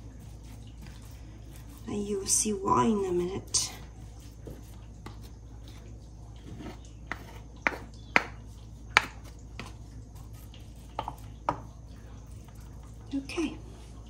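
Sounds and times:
wooden spoon pressing rice: 6.4 - 11.7.

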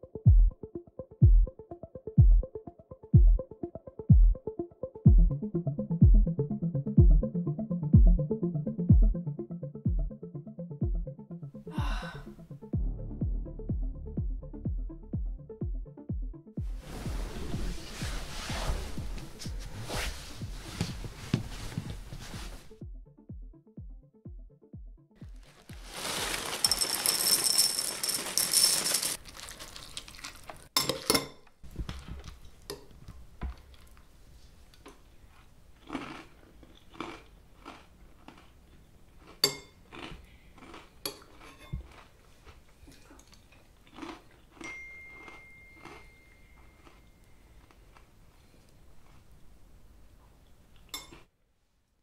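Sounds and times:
cereal pouring into ceramic bowl: 25.5 - 30.6
spoon clinking against bowl: 44.6 - 46.8.

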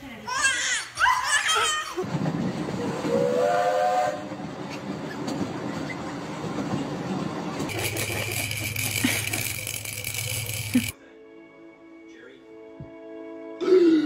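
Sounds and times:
train car rumble and clatter: 2.0 - 10.7
train whistle: 3.1 - 4.5.

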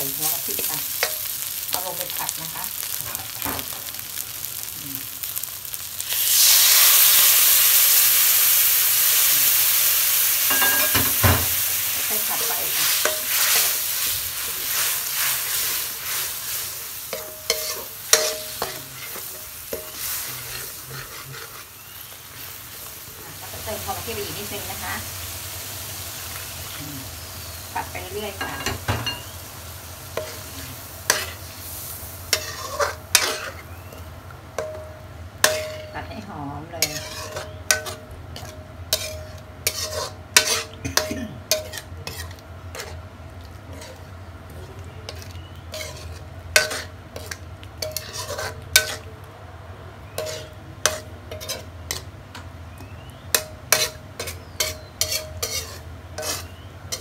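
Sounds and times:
faint sizzle: 0.0 - 57.0
utensil scraping a pan: 12.7 - 21.7, 32.3 - 33.6, 36.8 - 40.8, 41.5 - 43.0, 43.7 - 44.0, 45.1 - 49.1, 50.1 - 52.1, 53.7 - 57.0.

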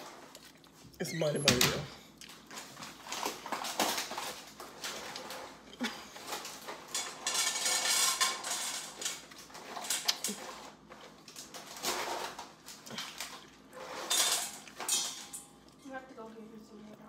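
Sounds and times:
dishes and cutlery clinking: 3.2 - 11.1, 11.8 - 15.8.

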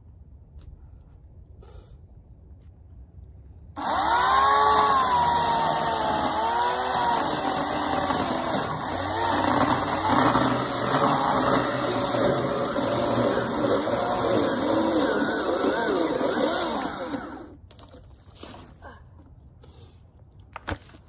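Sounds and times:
electric chainsaw cutting wood: 3.8 - 17.6.

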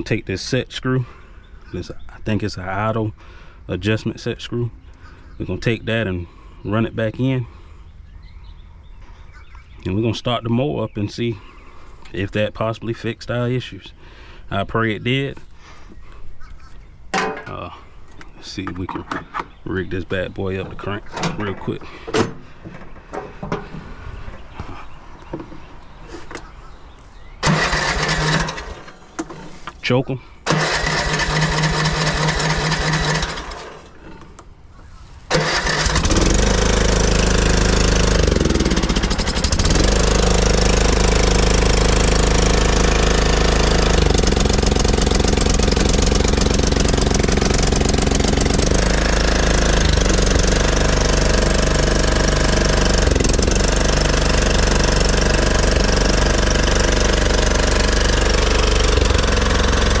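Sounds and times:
engine starter cranking: 27.4 - 29.6, 30.4 - 34.4, 35.3 - 60.0
mower engine running: 27.4 - 29.6, 30.4 - 34.3, 35.3 - 60.0.

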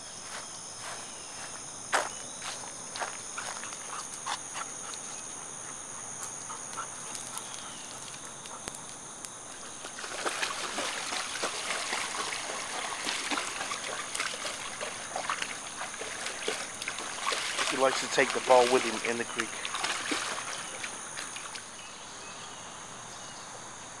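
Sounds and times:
footsteps on creek bank: 0.0 - 21.7
dog splashing through water: 9.6 - 21.7.

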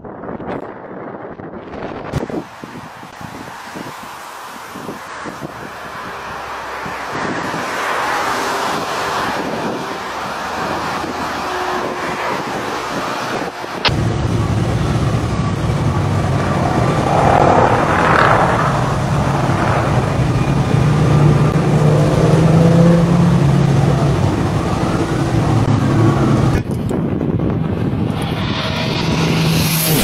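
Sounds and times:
aircraft outdoors: 0.0 - 30.0
jet engines rumbling overhead: 2.2 - 30.0.

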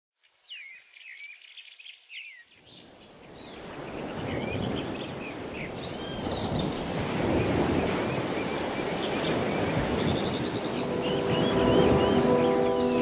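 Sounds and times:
ocean surf: 3.6 - 13.0.

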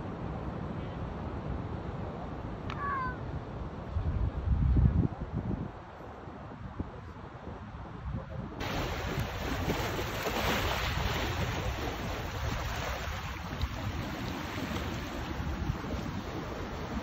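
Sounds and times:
wind rumbling on microphone: 1.3 - 17.0
seawater washing over rocks: 8.6 - 17.0.

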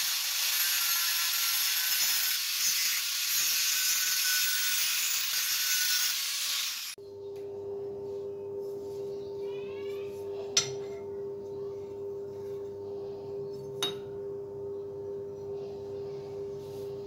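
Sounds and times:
grinder whining: 0.0 - 7.0.

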